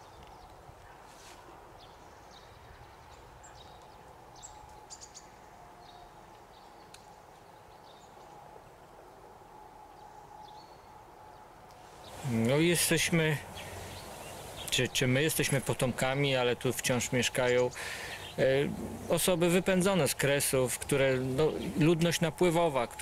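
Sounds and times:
bird chirps: 0:13.4 - 0:19.6
low steady rumble: 0:18.4 - 0:23.0.

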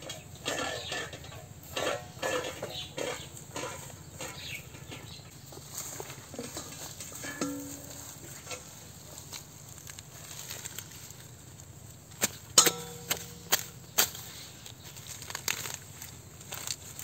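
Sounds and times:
grass rustling as pulled: 0:00.0 - 0:17.0
metal bowl ringing: 0:07.2 - 0:08.1, 0:12.6 - 0:13.5.

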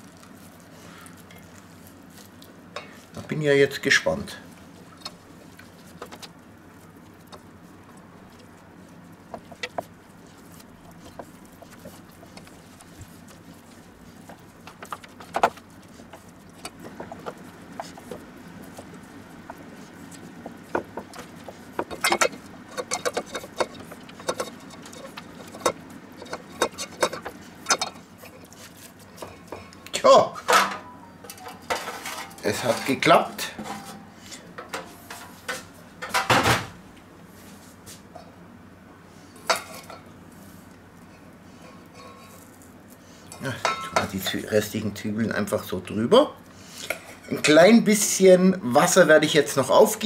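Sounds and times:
wet squishing and rustling: 0:00.0 - 0:30.0
faint steady hum: 0:00.0 - 0:50.0.

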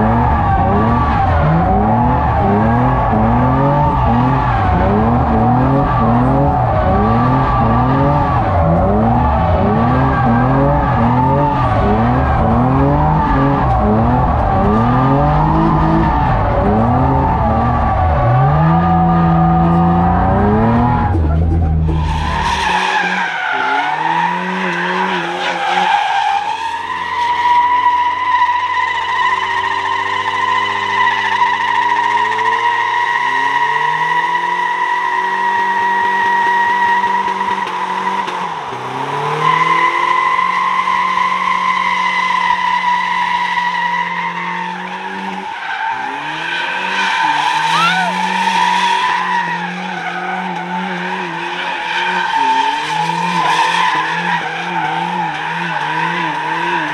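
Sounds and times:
engine revving: 0:00.0 - 0:25.9, 0:31.7 - 0:56.9
tires squealing in a burnout: 0:00.0 - 0:56.9.

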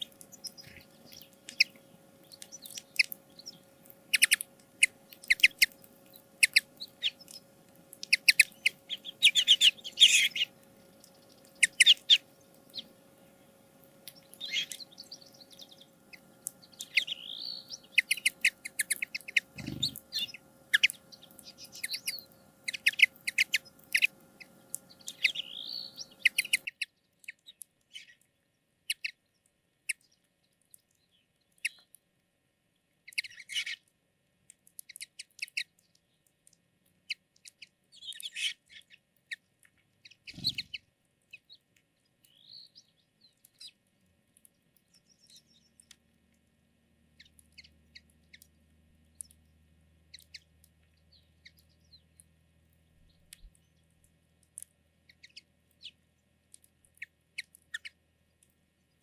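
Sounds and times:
linnets twittering: 0:00.0 - 0:05.8, 0:06.4 - 0:07.4, 0:08.0 - 0:12.9, 0:14.2 - 0:26.8
faint steady hum: 0:00.0 - 0:59.0.

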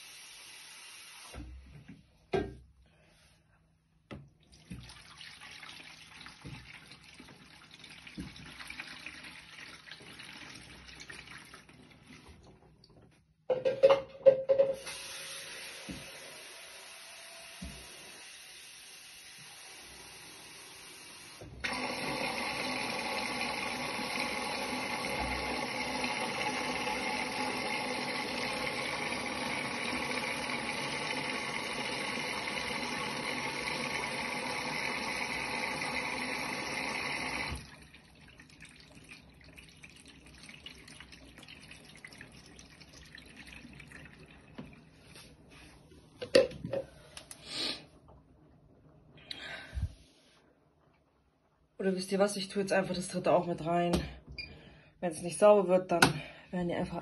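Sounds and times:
water running into washing machine: 0:04.4 - 0:13.2, 0:14.6 - 0:45.5.

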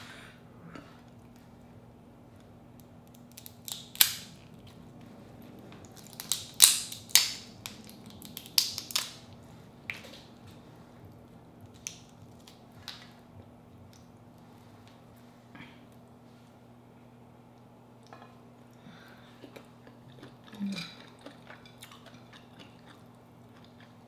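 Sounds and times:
shell cracking and snapping: 0:03.1 - 0:04.4, 0:05.9 - 0:09.2, 0:11.7 - 0:13.0.

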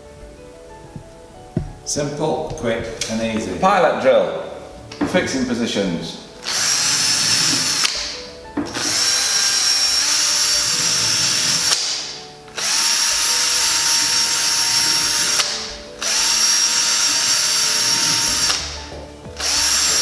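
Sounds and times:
cordless drill drilling: 0:06.4 - 0:20.0.

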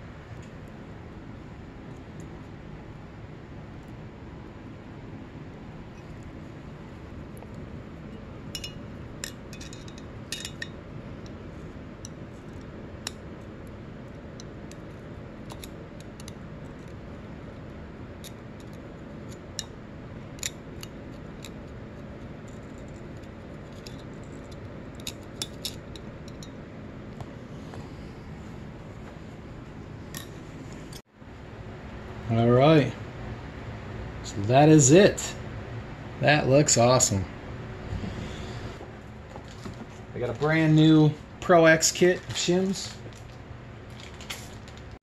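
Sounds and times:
steady low hum: 0:00.0 - 0:45.0
metal clicks of pliers and pick: 0:15.5 - 0:17.0, 0:22.6 - 0:26.5.

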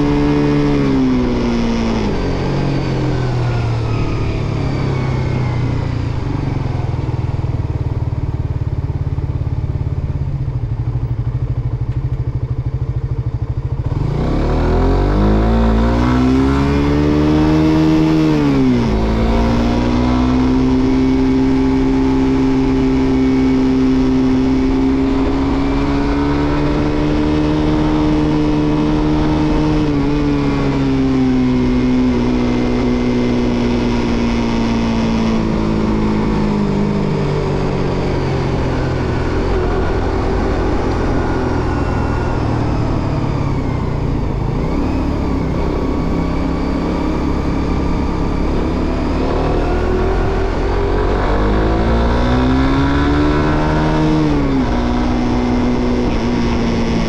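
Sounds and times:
motorcycle engine: 0:00.0 - 0:57.0.

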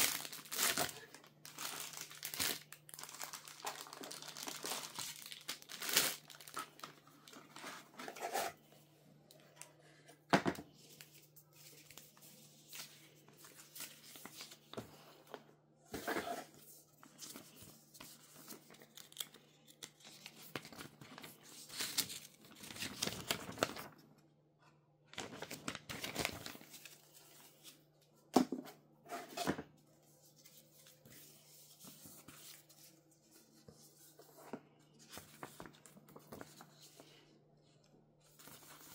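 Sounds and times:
packing material tearing and crinkling: 0:00.0 - 0:06.9.

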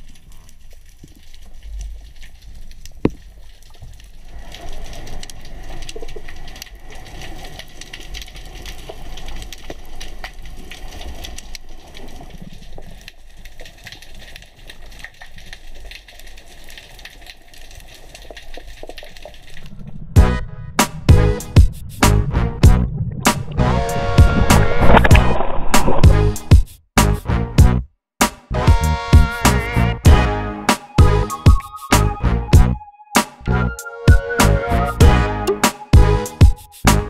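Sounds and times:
underwater rumble of moving water: 0:16.4 - 0:26.4.

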